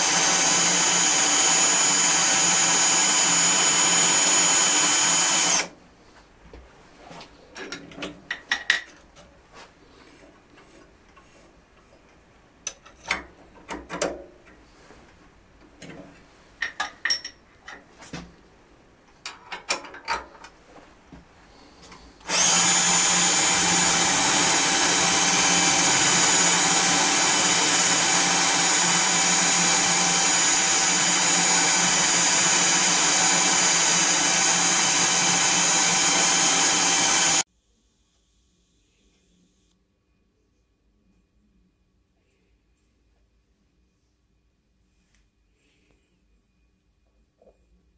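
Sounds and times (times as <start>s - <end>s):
motor whining: 22.2s - 37.4s.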